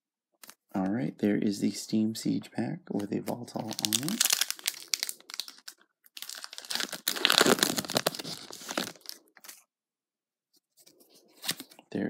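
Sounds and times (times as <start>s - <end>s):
foil wrapper crinkling and tearing: 3.6s - 9.6s.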